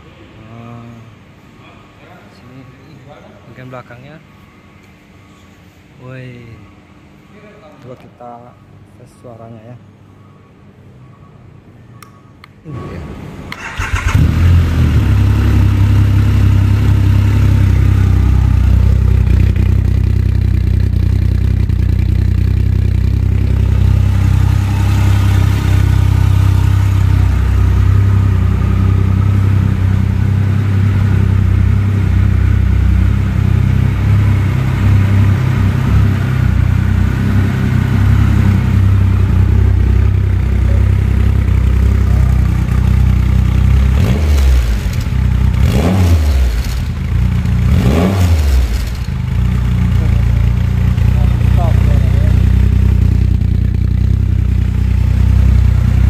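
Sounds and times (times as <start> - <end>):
motorcycle engine idling: 13.6 - 45.6, 46.4 - 47.7, 48.4 - 56.0.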